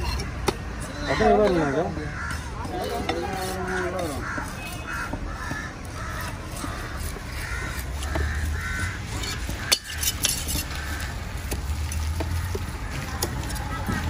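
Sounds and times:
crows cawing: 0:00.0 - 0:11.2
traffic rumble: 0:00.0 - 0:14.0.

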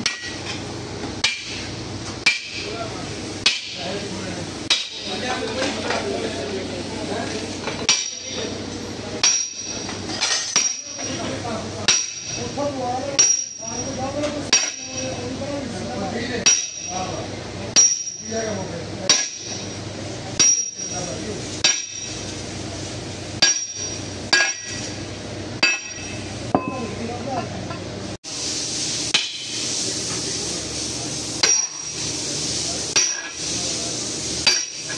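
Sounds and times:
steel bar clanking on metal: 0:23.4 - 0:25.0, 0:25.6 - 0:26.8, 0:31.4 - 0:32.0, 0:34.4 - 0:34.9.

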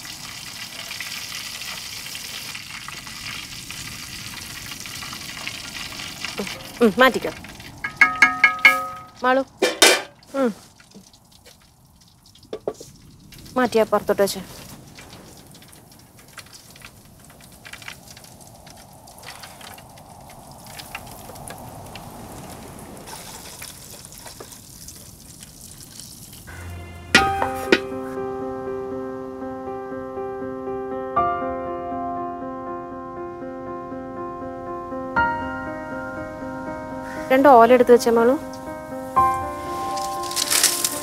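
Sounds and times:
prawns sizzling in hot oil: 0:00.0 - 0:13.8, 0:14.6 - 0:27.9, 0:39.0 - 0:41.0
wood fire crackling: 0:00.0 - 0:28.4, 0:37.0 - 0:41.0.

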